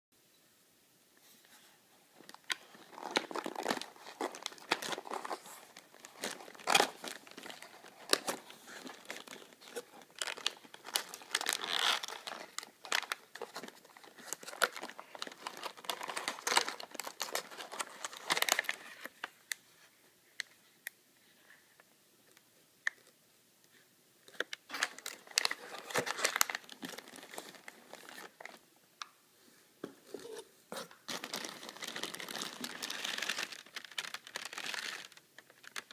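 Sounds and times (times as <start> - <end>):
plastic packaging crinkling: 2.2 - 19.4, 24.3 - 28.6, 30.1 - 35.9.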